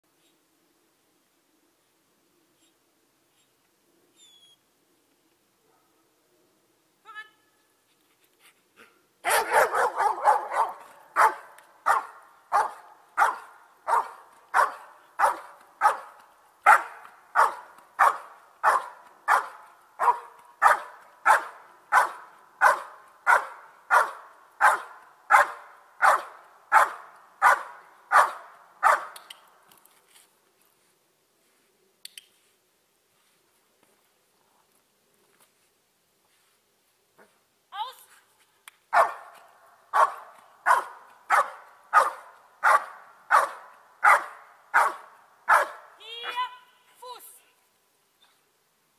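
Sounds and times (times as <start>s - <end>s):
dog barking: 5.6s - 6.0s, 9.2s - 16.1s, 16.7s - 29.2s, 38.9s - 39.3s, 39.9s - 46.4s.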